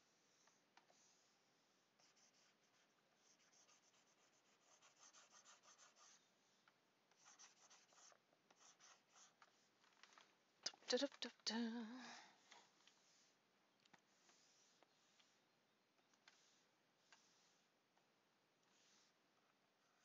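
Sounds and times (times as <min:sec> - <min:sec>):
stylus rubbing on tablet: 0:02.0 - 0:09.8, 0:12.4 - 0:17.8, 0:18.6 - 0:19.2.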